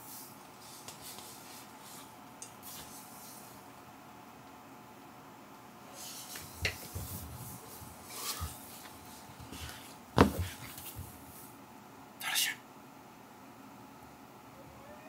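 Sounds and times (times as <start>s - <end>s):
soft rustling: 0.0s - 3.6s, 6.0s - 11.6s.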